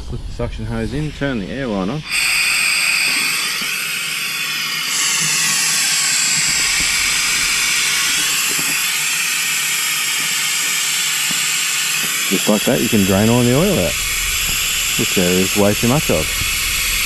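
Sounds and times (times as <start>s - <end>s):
compressed air hissing: 0.0s - 17.0s.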